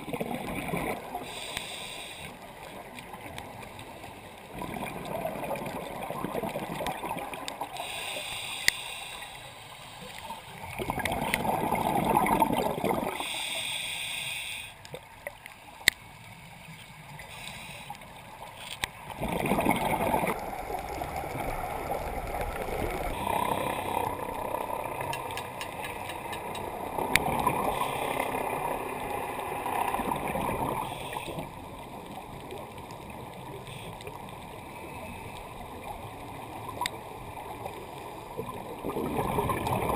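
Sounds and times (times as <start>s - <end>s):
exhaled bubbles rushing: 0.0s - 1.2s, 4.5s - 7.7s, 10.6s - 13.2s, 19.1s - 25.2s, 38.3s - 39.9s
hissing regulator inhales: 1.2s - 2.4s, 7.8s - 9.5s, 13.2s - 14.8s, 17.3s - 18.0s.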